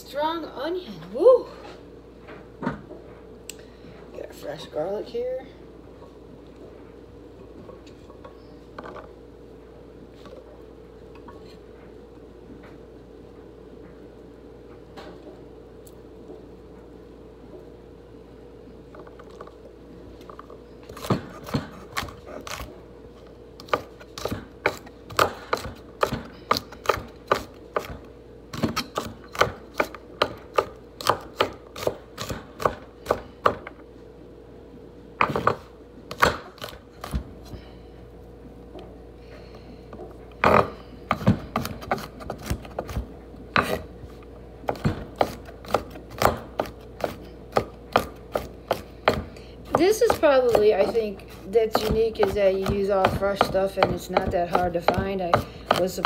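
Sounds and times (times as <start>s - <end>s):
knife chopping on wooden board: 20.9s - 22.7s, 23.6s - 33.7s, 35.2s - 37.3s, 44.7s - 51.1s, 51.7s - 56.0s.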